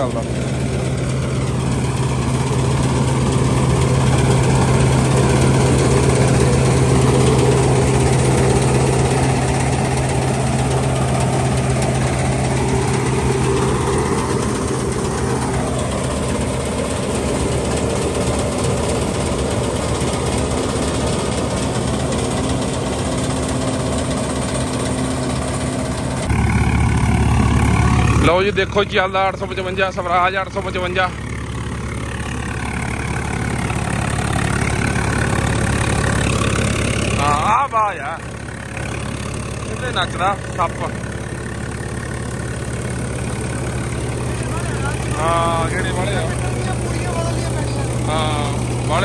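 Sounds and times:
tractor diesel engine drone: 0:00.0 - 0:49.0.

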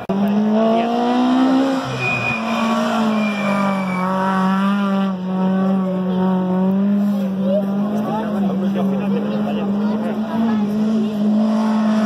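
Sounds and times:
rally car engine revving: 0:00.0 - 0:12.0
tyre squeal: 0:01.7 - 0:04.9.

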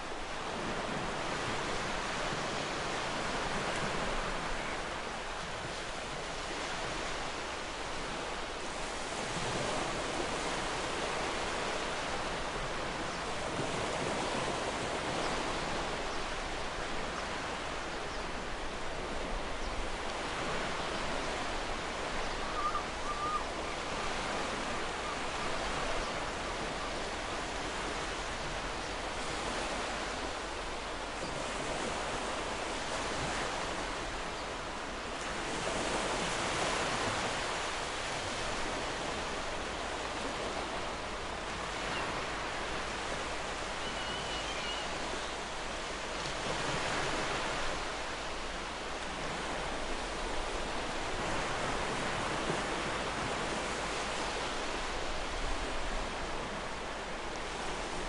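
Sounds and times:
ocean waves breaking: 0:00.0 - 0:58.0
distant gull call: 0:22.4 - 0:23.8, 0:43.8 - 0:44.9.

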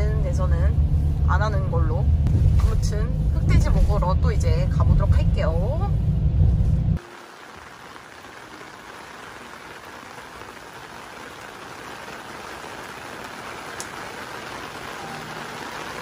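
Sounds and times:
rain on wooden deck: 0:07.0 - 0:16.0.

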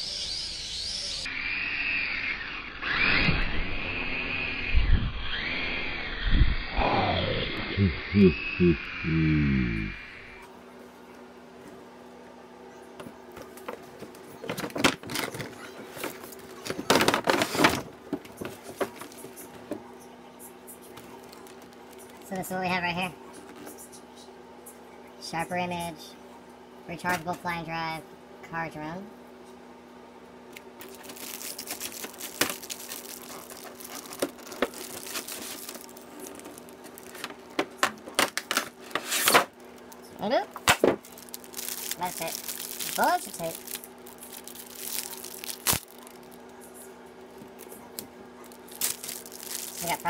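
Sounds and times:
faint electrical hum: 0:02.6 - 0:50.0
plastic packaging crinkling: 0:20.9 - 0:22.4, 0:30.8 - 0:50.0.

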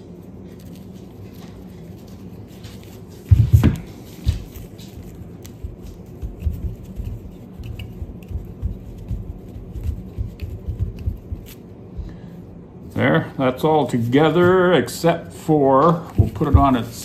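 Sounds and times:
heavy dull thumps on table: 0:16.1 - 0:16.8.

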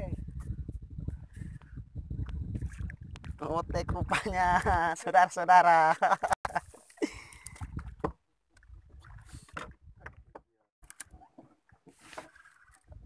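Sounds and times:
knocks and clicks on wooden boat: 0:07.6 - 0:08.2, 0:09.5 - 0:12.3.

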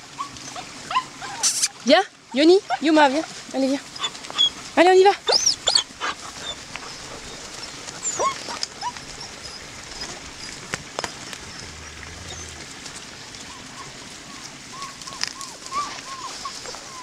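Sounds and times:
puppies whimpering: 0:05.2 - 0:12.8, 0:13.4 - 0:17.0.

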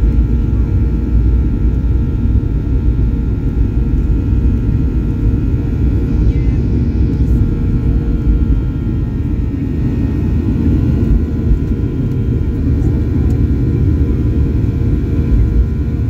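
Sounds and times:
jet engines roaring in cabin: 0:00.0 - 0:16.0.

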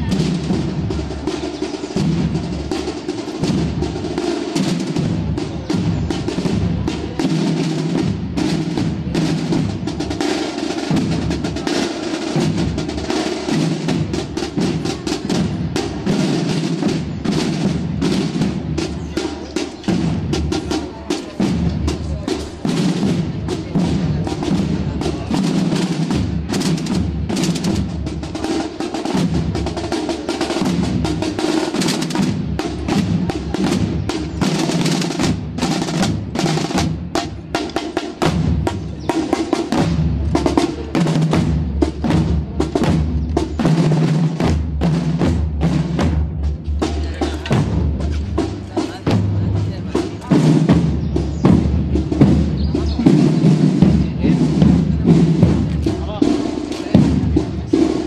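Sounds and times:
snare drum rolls: 0:00.0 - 0:58.0
bass drum beats: 0:30.6 - 0:57.7.

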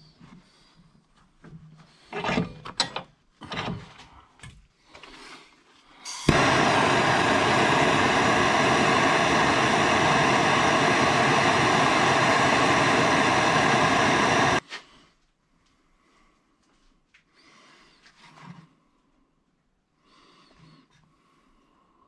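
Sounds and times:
gas torch hissing: 0:06.1 - 0:14.6.

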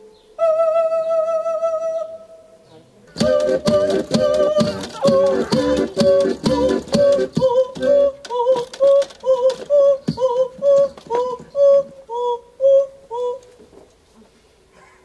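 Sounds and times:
woman singing staccato notes: 0:03.1 - 0:12.0.

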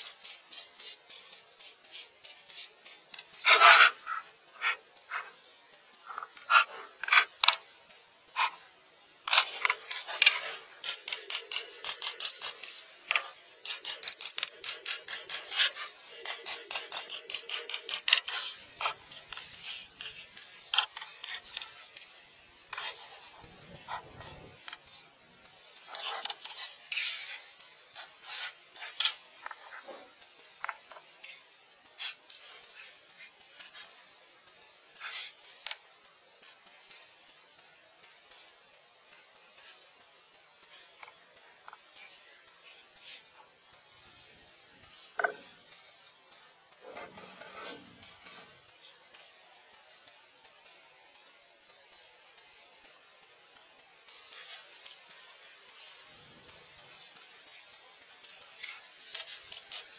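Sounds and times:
scratching and rubbing strokes: 0:00.0 - 0:52.8, 0:53.5 - 0:59.9.

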